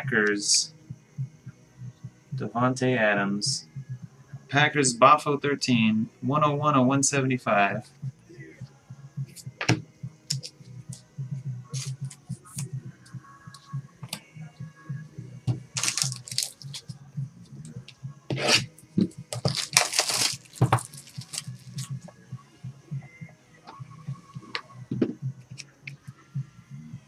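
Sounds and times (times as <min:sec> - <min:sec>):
packaging tearing and rustling: 0:15.8 - 0:16.9, 0:19.3 - 0:21.9.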